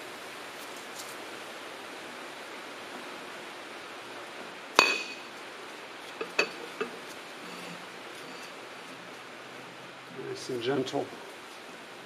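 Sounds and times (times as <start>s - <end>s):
steady low hiss: 0.0s - 12.0s
metallic clink: 4.8s - 5.3s.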